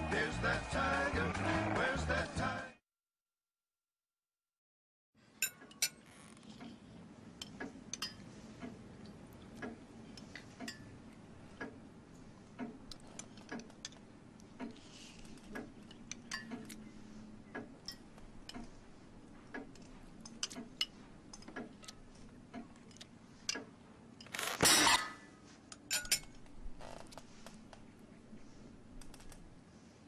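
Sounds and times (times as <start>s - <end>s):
tableware clattering: 24.2s - 25.2s, 25.8s - 26.4s.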